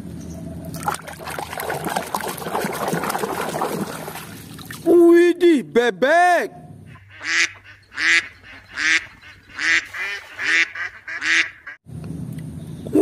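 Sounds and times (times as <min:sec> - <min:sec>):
duck quacking: 0:06.9 - 0:11.8.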